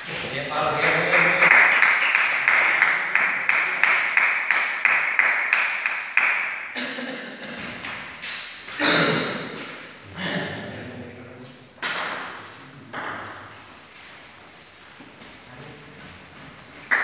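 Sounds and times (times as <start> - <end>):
people clapping: 0.0 - 7.0, 16.7 - 17.0.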